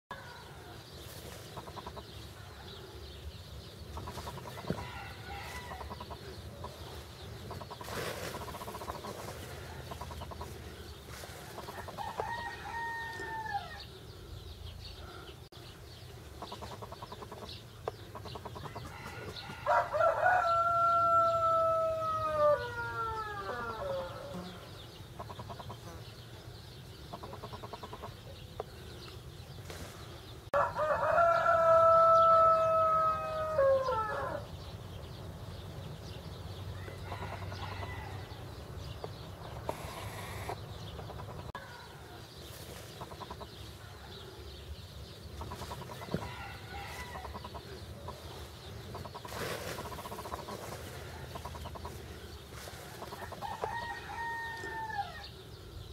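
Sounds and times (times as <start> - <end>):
rooster crowing: 4.7 - 5.9, 11.9 - 13.8, 18.8 - 24.5, 30.6 - 34.5, 36.8 - 38.4, 46.1 - 47.3, 53.4 - 55.3.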